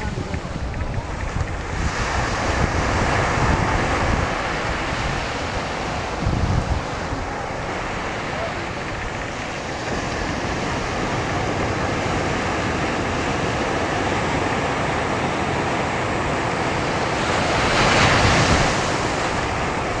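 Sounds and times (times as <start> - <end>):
ocean surf on beach: 0.0 - 20.0.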